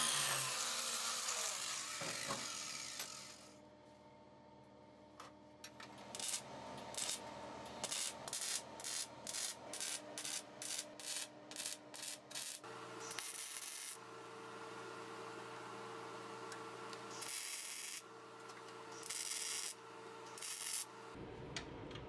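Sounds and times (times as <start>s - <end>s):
welding arc crackling: 6.1s - 7.2s, 7.8s - 14.0s, 17.1s - 18.0s, 19.0s - 20.9s.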